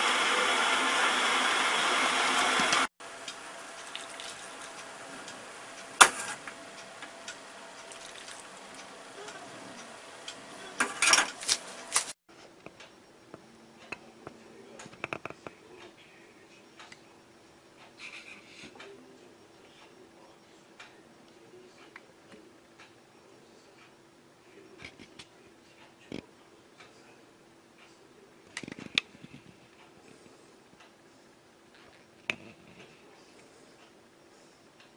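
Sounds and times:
loud steady hiss: 0.0s - 6.4s
water pouring into a bowl: 3.8s - 4.6s, 7.9s - 8.6s.

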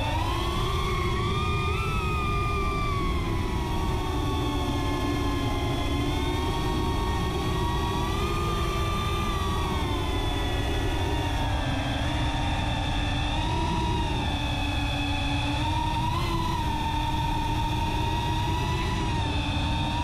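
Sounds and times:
drone motors whining: 0.0s - 20.0s.

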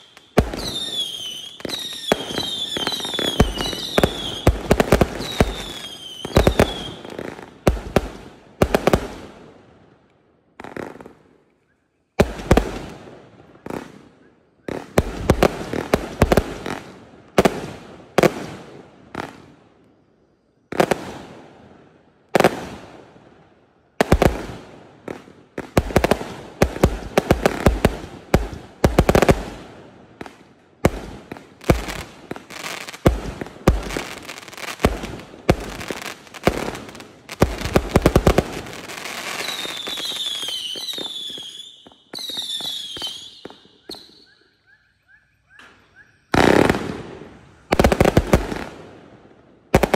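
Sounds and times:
falling firework whistles: 0.0s - 7.5s, 35.8s - 48.2s
firework bangs with crackling: 0.0s - 9.4s, 24.0s - 44.2s, 46.3s - 48.9s.

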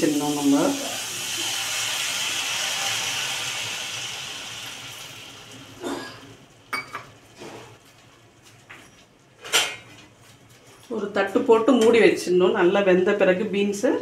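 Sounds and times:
food sizzling in a pan: 0.0s - 5.8s.

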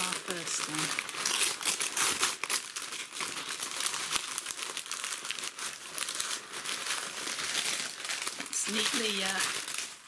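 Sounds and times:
paper crinkling and rustling: 0.0s - 10.0s.

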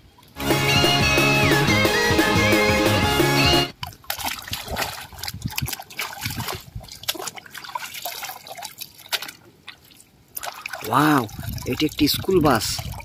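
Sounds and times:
toy splashing in puddle water: 3.7s - 13.0s.

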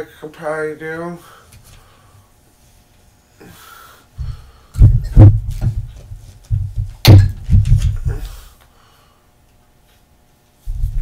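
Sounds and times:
dull thuds on a worktable: 4.2s - 8.2s.

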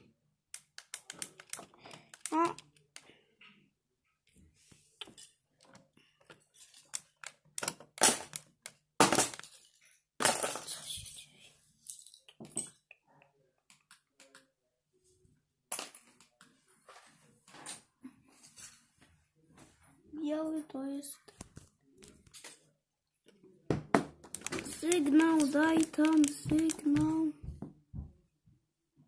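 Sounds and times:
plastic toy parts clattering: 0.6s - 2.9s, 5.0s - 10.9s, 24.2s - 27.3s.

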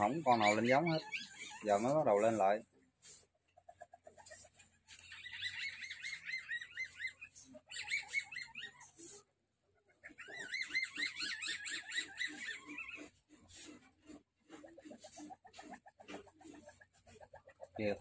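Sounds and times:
civet trilling calls: 0.0s - 2.6s, 3.7s - 9.2s, 10.0s - 13.7s.

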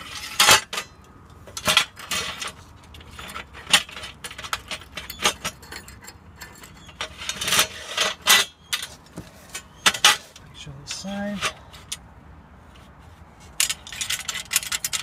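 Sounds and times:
metal bolts clinking and scraping: 0.0s - 12.1s, 12.7s - 15.0s.

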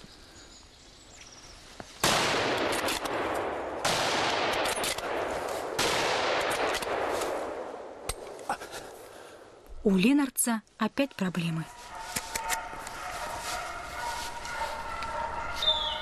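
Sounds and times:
rifle shots with echo: 2.0s - 8.2s.

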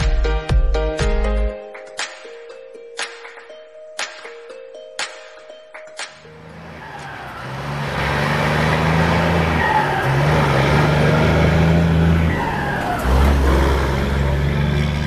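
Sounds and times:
diesel truck driving past: 6.2s - 15.0s.

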